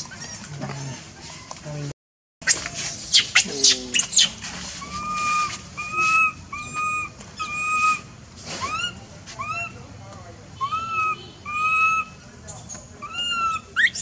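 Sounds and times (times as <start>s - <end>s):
shrill animal screeches: 2.5s - 9.8s, 10.6s - 12.2s, 13.0s - 14.0s.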